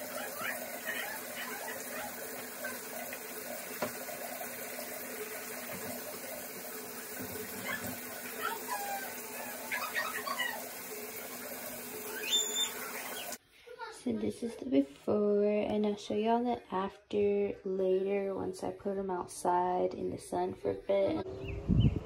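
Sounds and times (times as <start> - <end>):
short high squeaks: 12.1 - 13.0.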